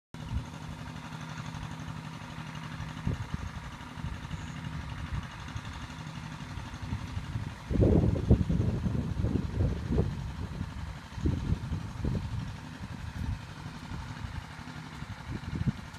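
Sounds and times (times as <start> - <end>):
small engine humming: 0.2 - 15.9
low rumble: 6.8 - 15.9.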